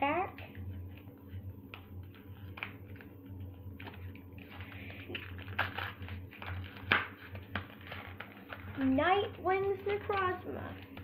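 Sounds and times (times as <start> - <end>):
foil wrapper crinkling: 1.7 - 11.0
foil wrapper tearing: 3.8 - 9.4.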